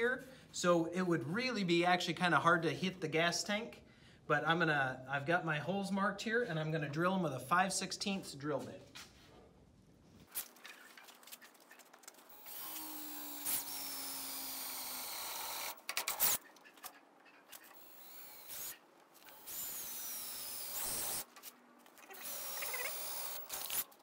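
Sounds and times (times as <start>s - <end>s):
cordless drill drilling sheet metal: 12.3s - 16.5s, 17.6s - 21.3s, 22.0s - 24.0s.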